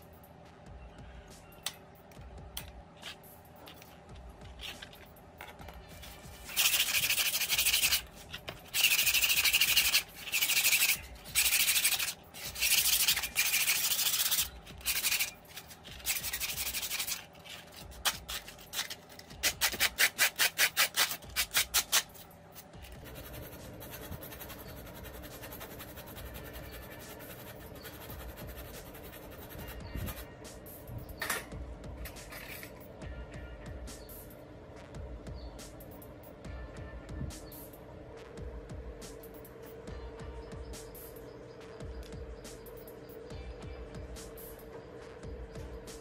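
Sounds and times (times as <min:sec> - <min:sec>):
hand scrubbing rusty wire: 0:06.0 - 0:22.2.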